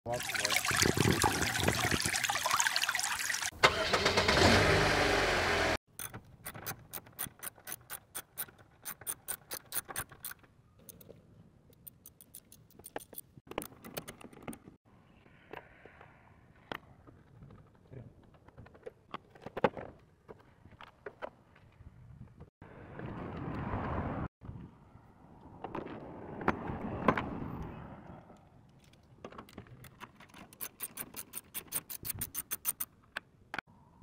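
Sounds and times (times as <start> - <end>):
coolant rushing out: 0.1 - 5.0.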